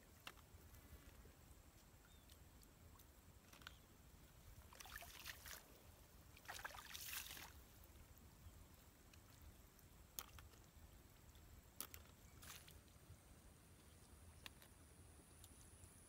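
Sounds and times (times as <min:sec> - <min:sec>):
hands splashing in muddy puddle: 0:04.7 - 0:05.8, 0:06.4 - 0:07.6.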